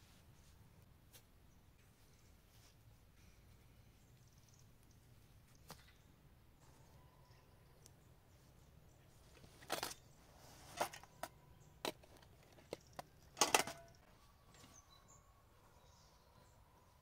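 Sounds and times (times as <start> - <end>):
metal tins clunking: 12.7 - 14.0.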